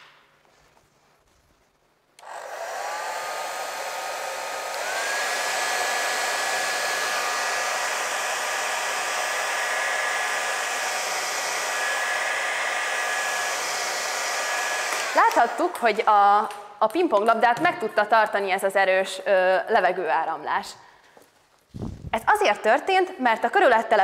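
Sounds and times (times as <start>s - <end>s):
hair dryer whining: 2.2s - 16.0s.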